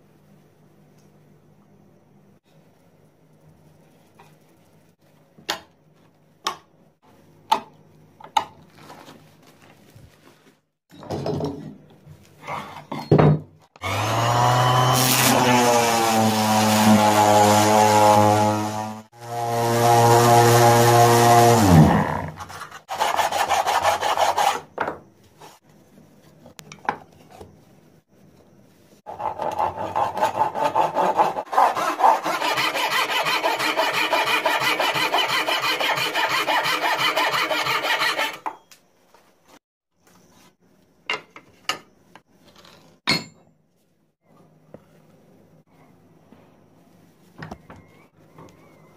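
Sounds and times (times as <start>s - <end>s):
belt sander grinding plywood: 13.8s - 22.0s, 29.1s - 38.4s
electric motor spinning up and down: 13.8s - 22.4s.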